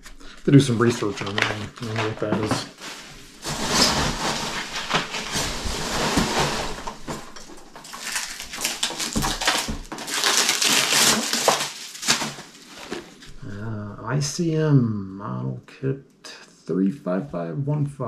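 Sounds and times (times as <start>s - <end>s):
packing peanuts crunching and rustling: 0.4s - 13.3s.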